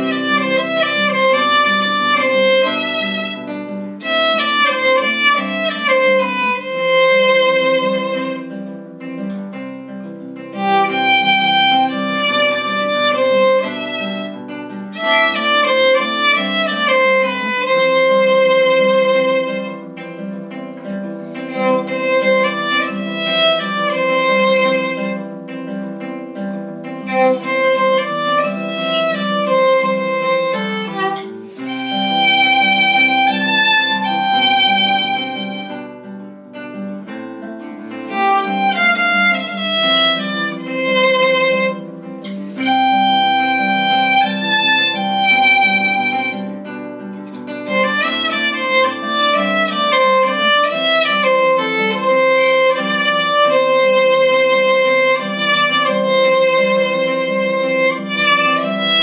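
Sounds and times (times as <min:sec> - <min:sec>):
plucked strings: 0:00.0 - 0:59.0
violin melody: 0:00.0 - 0:59.0.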